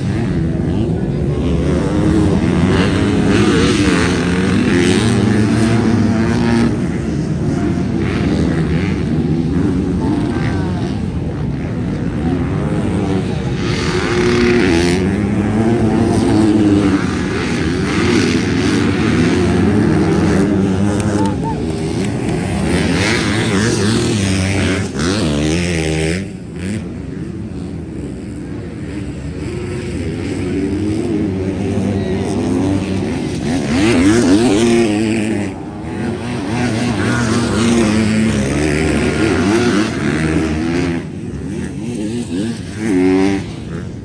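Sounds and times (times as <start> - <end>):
motocross bike engines revving: 0.0 - 44.0.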